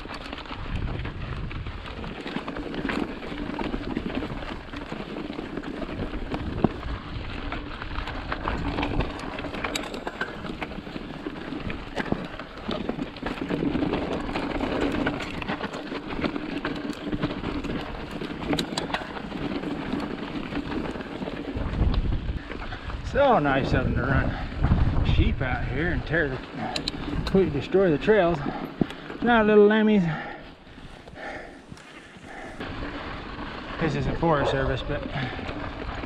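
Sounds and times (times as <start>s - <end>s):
bike tyres crunching on gravel: 0.0s - 36.0s
stones and bike rattling: 0.0s - 36.0s.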